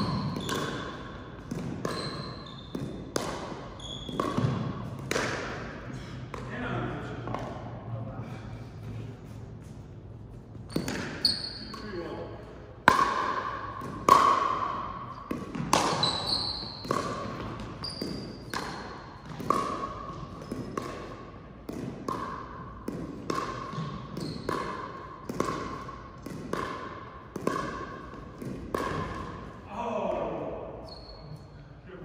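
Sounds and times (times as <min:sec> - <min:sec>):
shoe squeaks on floor: 0:00.0 - 0:01.1, 0:01.8 - 0:03.0, 0:03.7 - 0:04.6, 0:10.5 - 0:12.0, 0:15.8 - 0:18.8, 0:23.7 - 0:24.6, 0:30.8 - 0:31.6
paddle hitting ball: 0:00.0 - 0:06.6, 0:10.7 - 0:11.2, 0:12.8 - 0:29.5.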